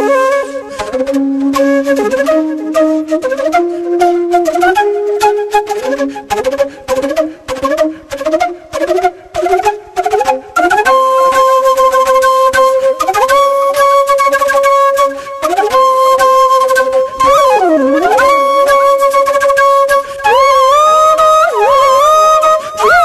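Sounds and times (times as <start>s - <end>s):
flute playing slow melody: 0.0s - 23.0s.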